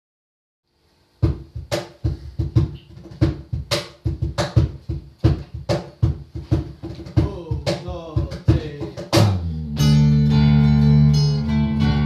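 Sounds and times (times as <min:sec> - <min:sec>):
acoustic guitar strummed hard: 0:09.1 - 0:12.0.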